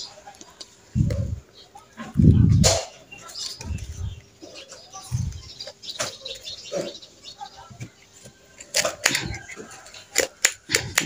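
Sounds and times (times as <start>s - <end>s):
leaves rustling and crinkling: 0.0s - 6.9s.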